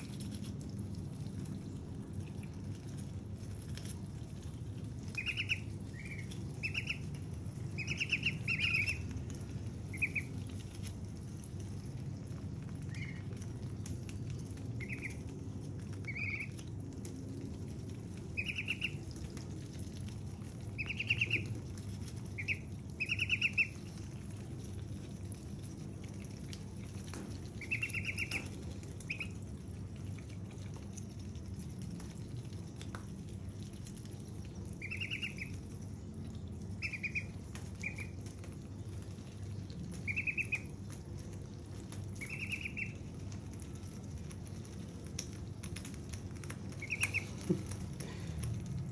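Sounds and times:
steady low hum: 0.0s - 48.9s
ducklings peeping: 5.0s - 9.2s, 9.8s - 10.5s, 12.8s - 13.4s, 14.8s - 15.3s, 16.0s - 16.6s, 18.3s - 19.1s, 20.7s - 24.0s, 27.5s - 29.4s, 34.8s - 35.6s, 36.7s - 38.2s, 40.0s - 40.8s, 42.1s - 43.2s, 46.7s - 47.5s.

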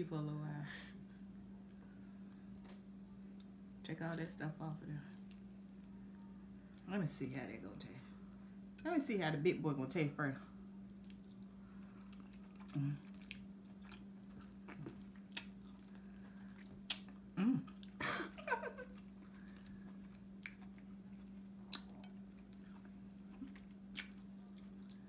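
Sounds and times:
steady low hum: 0.0s - 25.0s
person humming: 17.4s - 18.5s
wet chewing mouth clicks: 21.6s - 25.0s.

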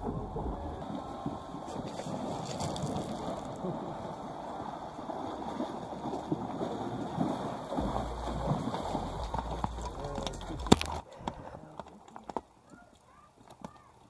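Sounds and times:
low rumble: 0.0s - 1.5s, 7.8s - 11.0s
horse splashing through water: 0.0s - 11.0s.

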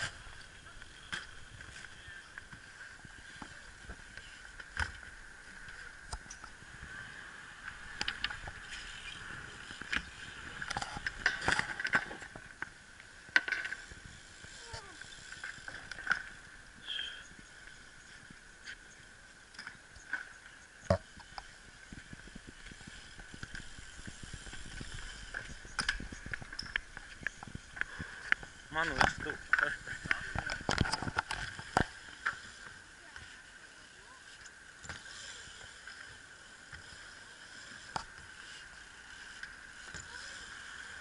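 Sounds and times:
bike clicks and rattles: 0.0s - 6.8s, 7.5s - 16.5s, 17.5s - 33.3s
bike wheels rolling on concrete: 0.0s - 41.0s.

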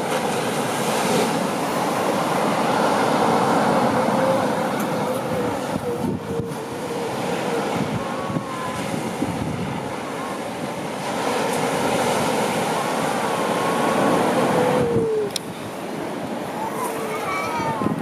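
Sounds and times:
surf: 0.0s - 18.0s
wind: 0.0s - 18.0s
seals wailing: 1.8s - 15.5s, 16.2s - 18.0s.

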